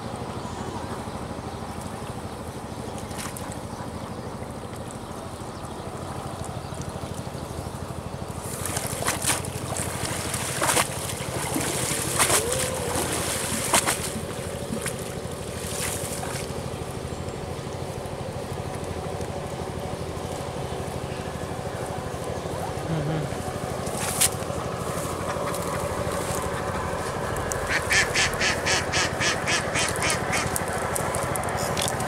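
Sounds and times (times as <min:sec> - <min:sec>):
steady low hum: 0:00.0 - 0:32.0
sharp splashes: 0:08.4 - 0:16.6
water streaming off a net: 0:08.5 - 0:16.5.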